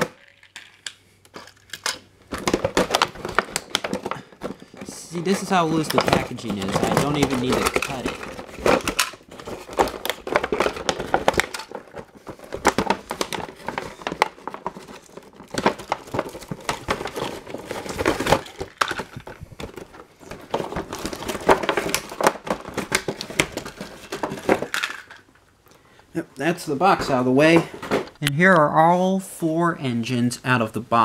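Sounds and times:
cardboard and plastic crinkling: 1.4 - 25.3.

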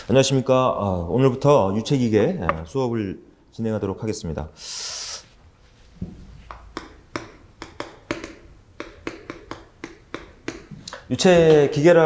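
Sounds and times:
chalk tapping on chalkboard: 6.4 - 11.6.

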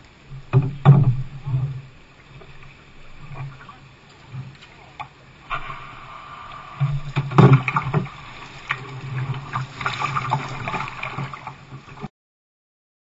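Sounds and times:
paddle strokes splashing: 0.0 - 12.1
water lapping against hull: 0.0 - 12.1
knock and splash: 0.5 - 1.8, 6.8 - 12.1.

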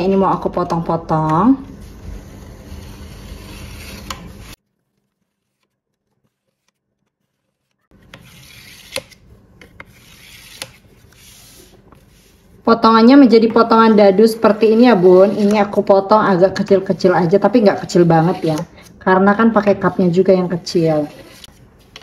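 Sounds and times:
knife scraping metal tray: 2.3 - 4.6, 8.0 - 9.2, 9.8 - 12.3, 13.3 - 18.9, 19.5 - 22.0.

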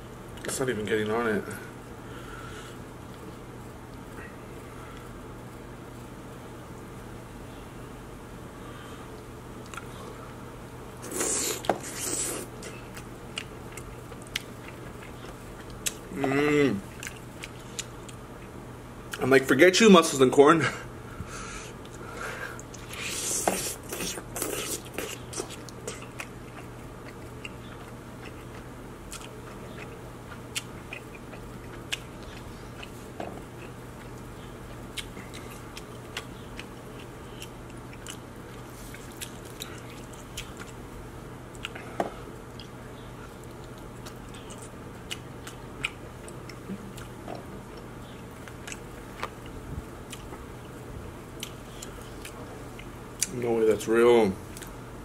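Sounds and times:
steady low hum: 0.0 - 55.0
wet chewing and smacking: 9.6 - 9.9, 11.2 - 16.1, 16.9 - 19.2, 22.6 - 40.8, 41.5 - 53.4.

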